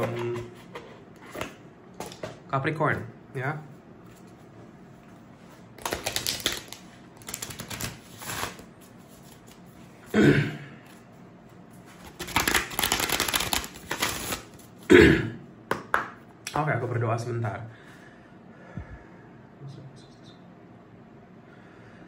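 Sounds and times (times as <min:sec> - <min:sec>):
cards being shuffled: 0:05.8 - 0:09.9, 0:11.9 - 0:14.8
voice: 0:19.6 - 0:20.5.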